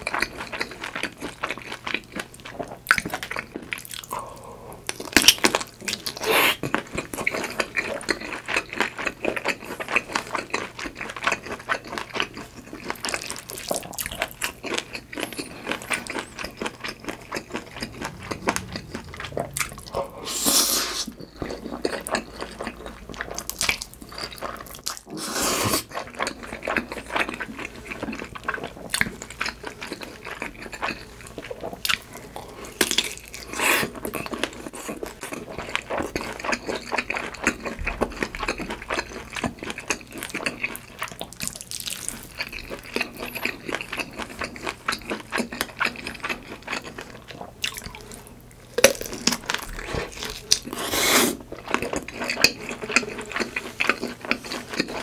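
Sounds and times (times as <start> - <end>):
wet chewing: 0.0 - 55.0.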